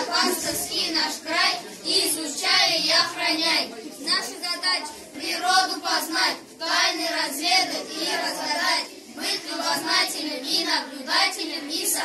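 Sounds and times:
boys speaking in unison: 0.0 - 2.2, 3.6 - 5.1.

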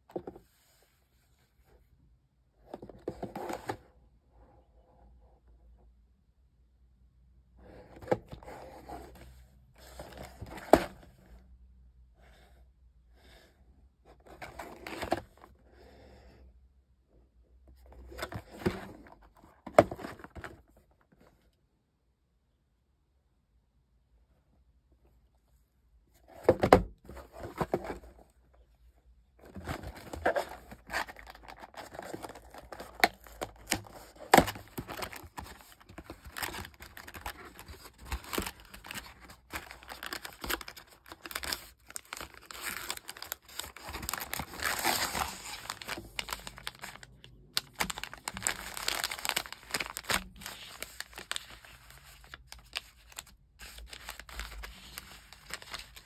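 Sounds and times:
cardboard clicks and knocks: 26.3 - 28.0
paper-foil envelopes crinkling: 29.6 - 56.0.

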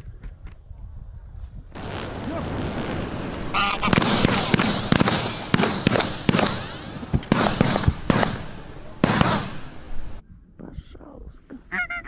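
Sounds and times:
shotgun shots with echo: 1.8 - 10.2.

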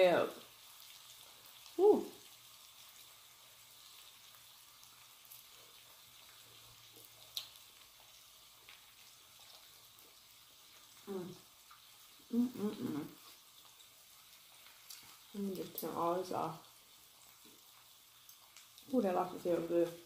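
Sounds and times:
griddle sizzling: 0.0 - 20.0.

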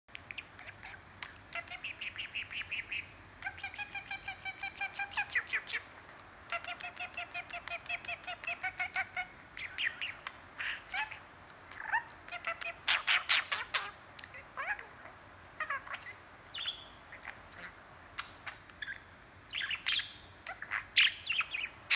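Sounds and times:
budgerigar chattering: 0.3 - 5.9, 6.5 - 14.9.

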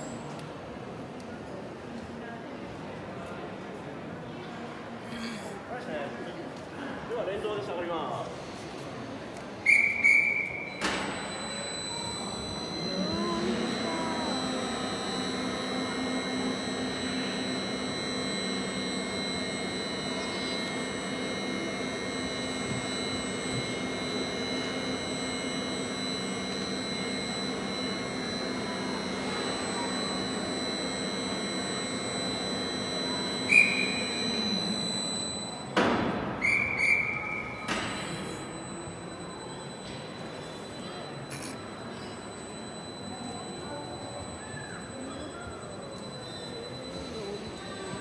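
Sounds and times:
gantry crane hoist humming: 9.3 - 48.0
high-pitched signal tones: 9.7 - 48.0.

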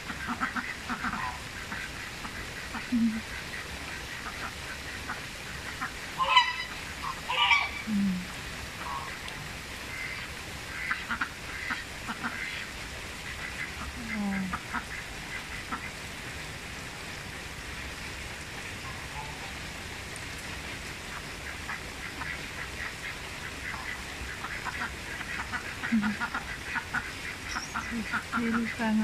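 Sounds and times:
rain pattering on water: 0.0 - 29.0
ducks quacking: 0.1 - 7.9, 8.8 - 9.3, 9.9 - 12.7, 13.3 - 16.0, 21.1 - 29.0.

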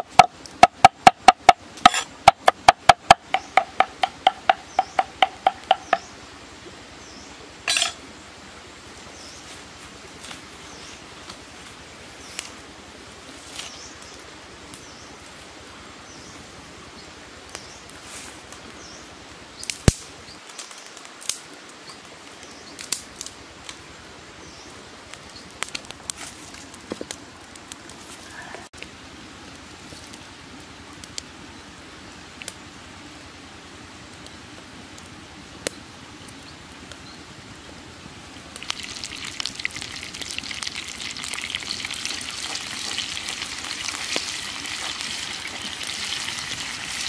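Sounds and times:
wood fire crackling: 0.0 - 6.4, 7.7 - 47.0
small birds chirping: 3.2 - 6.3, 38.6 - 47.0
sticks snapping: 19.6 - 21.4.

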